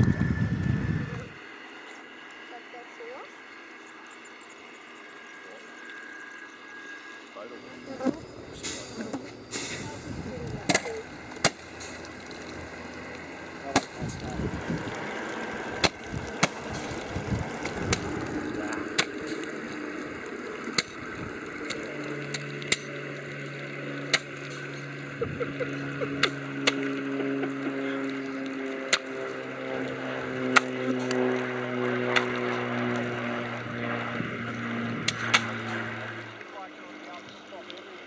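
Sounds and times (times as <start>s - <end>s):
water and wind noise: 0.0s - 3.2s, 7.7s - 38.0s
electric motor hum: 0.0s - 36.5s
model cannons firing sharp cracks: 8.6s - 14.2s, 14.8s - 23.2s, 28.4s - 29.3s, 35.1s - 35.8s.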